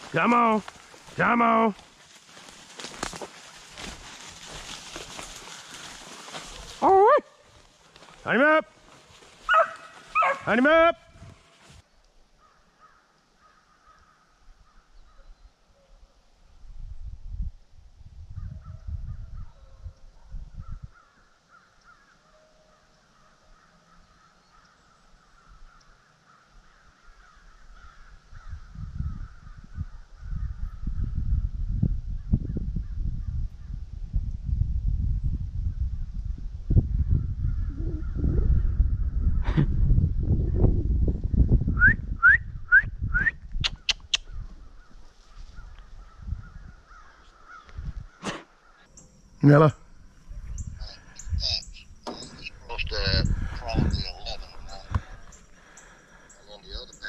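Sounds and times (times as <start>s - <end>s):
crows cawing: 5.4s - 6.4s, 12.4s - 14.9s, 20.9s - 29.6s, 44.3s - 48.9s, 54.5s - 56.7s
wind rumbling on microphone: 9.4s - 11.8s, 16.4s - 21.1s, 26.7s - 48.2s, 49.1s - 57.0s.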